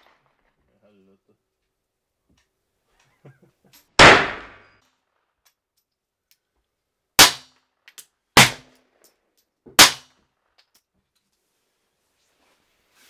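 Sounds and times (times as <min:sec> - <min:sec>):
pistol shots: 0:04.0 - 0:04.8, 0:07.2 - 0:07.5, 0:08.4 - 0:08.8, 0:09.8 - 0:10.1.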